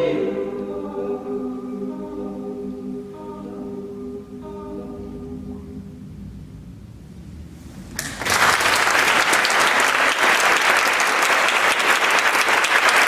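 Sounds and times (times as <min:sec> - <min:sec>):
audience applauding: 0:07.9 - 0:13.0.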